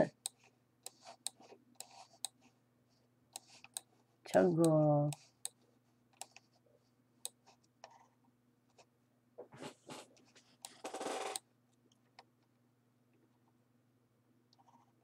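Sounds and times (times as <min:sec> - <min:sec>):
computer mouse clicking: 0:00.1 - 0:02.4, 0:03.3 - 0:05.6, 0:06.2 - 0:06.5.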